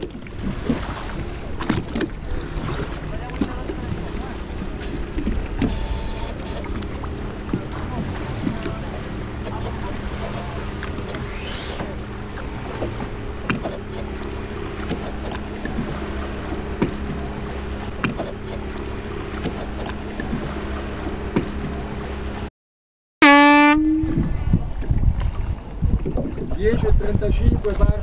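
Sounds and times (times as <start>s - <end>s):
motorboat engine running: 0.0s - 22.5s, 23.2s - 28.0s
wind and water rushing: 0.0s - 22.5s, 23.4s - 28.0s
horn blast: 23.2s - 24.4s.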